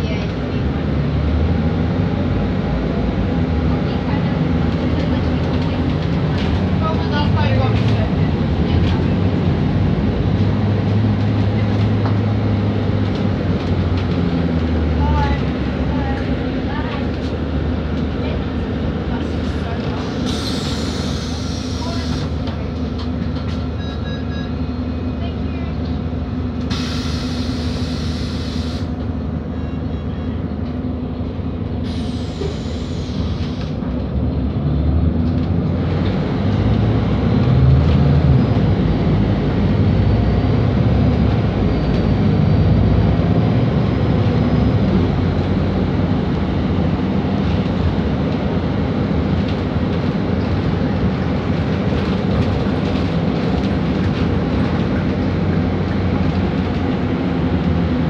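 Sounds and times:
bus diesel engine droning: 0.0s - 58.0s
road rumble: 0.0s - 58.0s.

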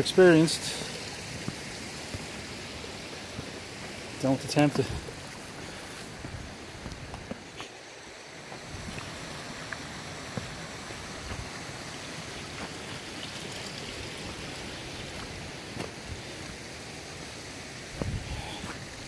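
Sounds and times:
wind buffeting microphone: 17.9s - 19.0s.

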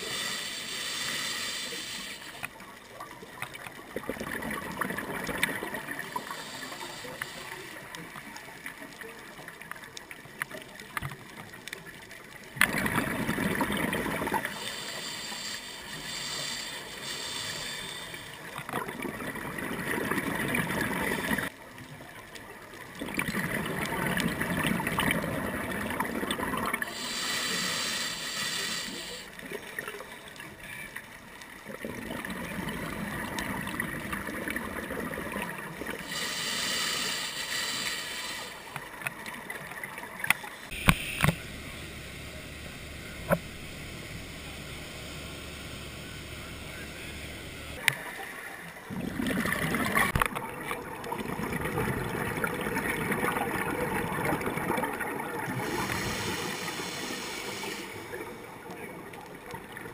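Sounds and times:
underwater water hiss: 0.0s - 2.6s, 4.9s - 8.2s, 12.7s - 18.7s, 26.8s - 30.3s, 35.4s - 41.4s, 55.4s - 58.5s
diver exhaling bubbles: 48.9s - 50.3s.

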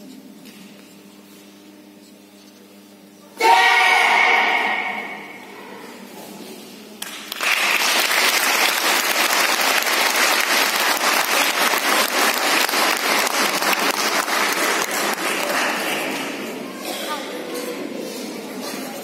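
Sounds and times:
audience applauding: 7.0s - 16.5s.

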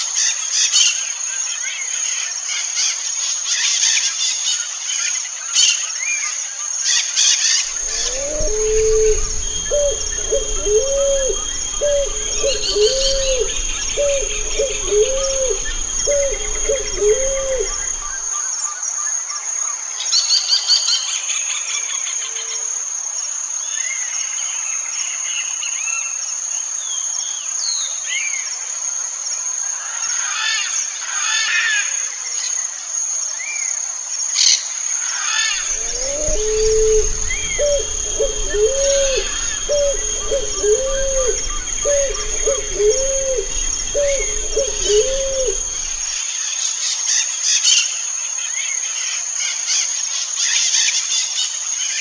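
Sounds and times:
dove cooing: 7.7s - 18.3s, 35.6s - 46.2s
low rumble: 7.7s - 18.3s, 35.6s - 46.2s
small birds chirping: 7.7s - 18.3s, 35.6s - 46.2s
high insect whine: 7.7s - 18.4s, 35.6s - 46.2s.

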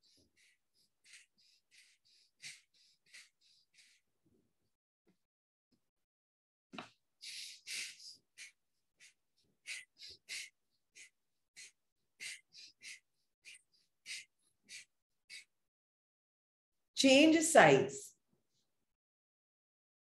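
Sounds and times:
forceful breaths through nose: 0.0s - 4.1s, 6.9s - 15.5s.

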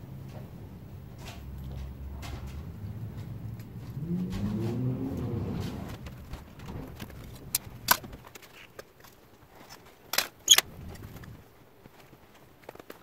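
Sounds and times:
low rumble: 0.0s - 8.2s.

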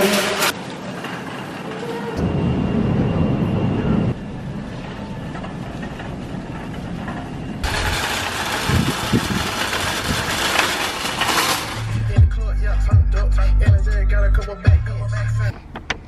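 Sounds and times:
shopping cart rolling: 0.0s - 2.8s, 4.0s - 12.9s.

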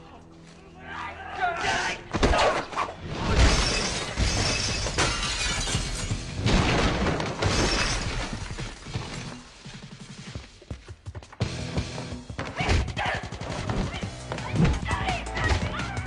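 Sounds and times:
crashing and shattering: 2.2s - 9.6s.

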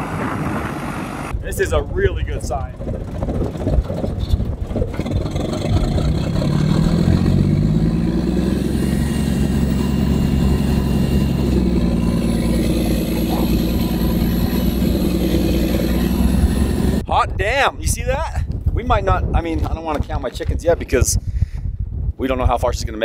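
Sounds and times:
bulldozer diesel engine revving: 4.9s - 17.0s
thin high whine: 8.3s - 17.0s.

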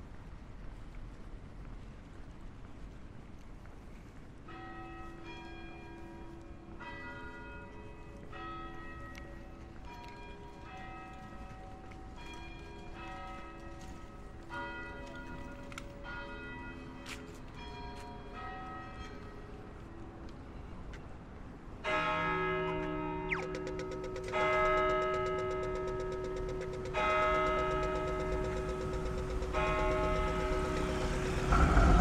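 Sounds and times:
low city hum: 0.0s - 32.0s
bells ringing a peal: 21.9s - 32.0s
sharp click: 23.3s - 31.0s.

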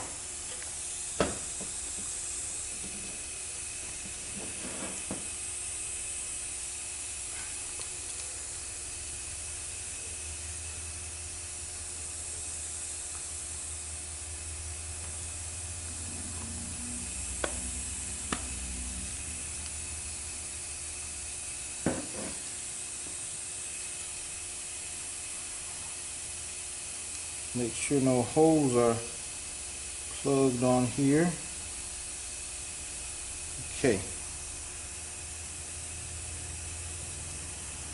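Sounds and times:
low hum: 14.6s - 20.4s.

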